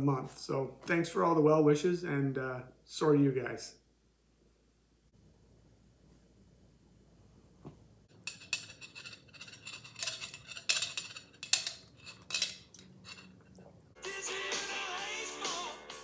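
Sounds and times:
music: 0:14.0 - 0:16.0.

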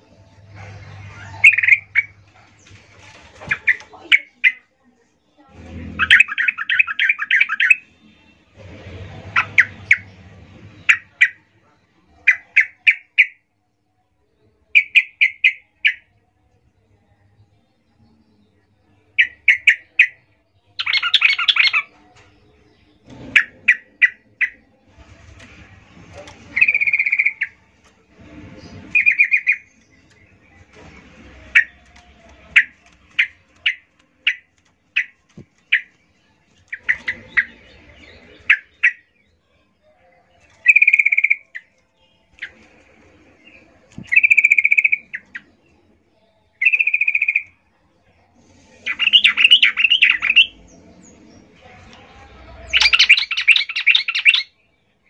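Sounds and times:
bird chattering calls: 0:01.0 - 0:02.2, 0:26.6 - 0:27.6, 0:28.9 - 0:29.7, 0:44.1 - 0:45.5.

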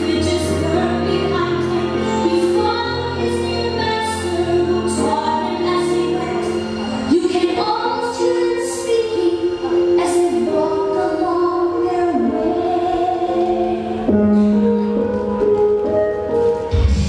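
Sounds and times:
woman singing into a microphone: 0:00.0 - 0:06.5, 0:07.1 - 0:14.1.

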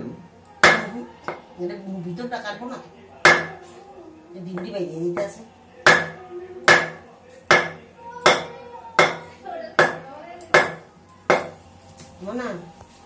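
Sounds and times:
wooden block hammering knife: 0:00.6 - 0:01.4, 0:03.2 - 0:03.6, 0:04.6 - 0:11.6.

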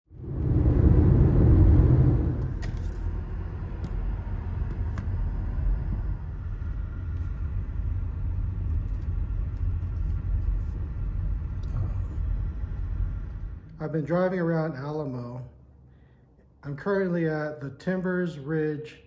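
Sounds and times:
car engine and tyres rumbling: 0:00.1 - 0:14.0.

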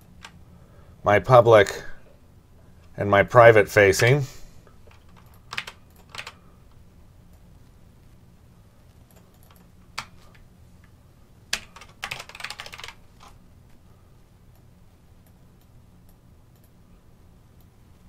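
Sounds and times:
steady low hum: 0:00.0 - 0:18.0
typing on computer keyboard: 0:04.8 - 0:06.4, 0:09.1 - 0:10.4, 0:11.5 - 0:13.4.

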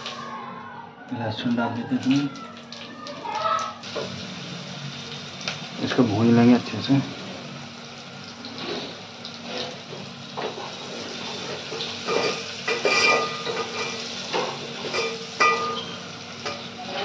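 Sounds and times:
spices sizzling in hot oil: 0:03.4 - 0:17.0
ladle clinking: 0:12.1 - 0:16.6.

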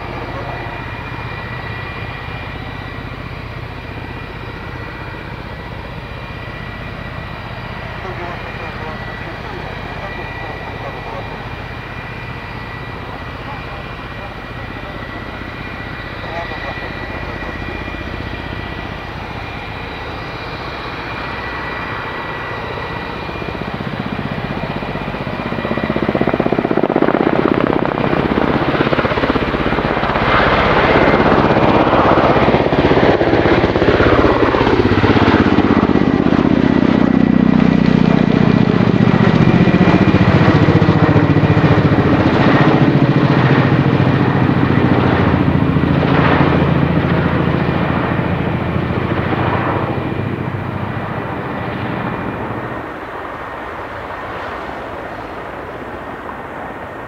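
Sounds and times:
helicopter rotor beat: 0:00.0 - 0:57.0
helicopter turbine whine: 0:00.0 - 0:57.0.

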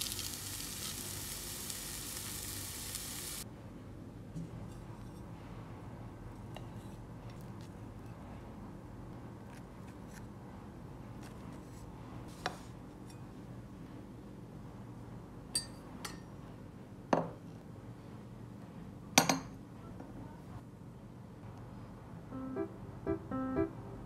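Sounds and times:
faint steady hum: 0:19.2 - 0:24.0.

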